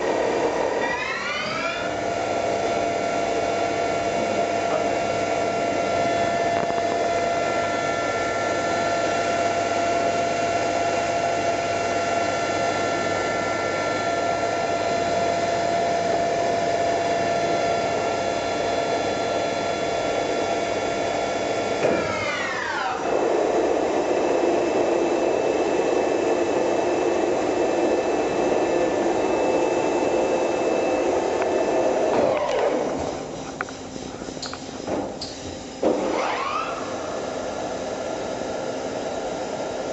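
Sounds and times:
machine spindle whining: 0:00.0 - 0:39.9
steady machine whir: 0:00.0 - 0:39.9.

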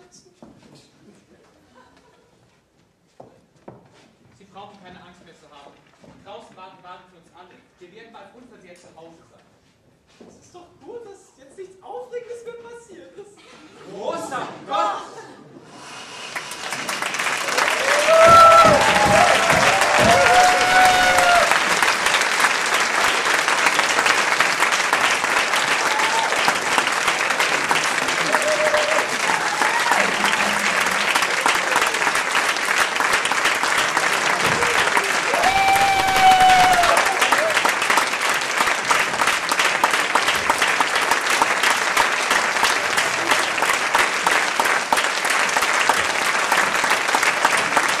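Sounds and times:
audience applauding: 0:15.8 - 0:48.0.

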